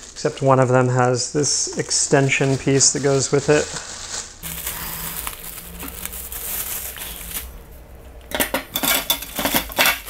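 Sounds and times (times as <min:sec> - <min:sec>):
plastic wrapping rustling: 0:00.0 - 0:10.0
metal stands clinking: 0:08.3 - 0:10.0.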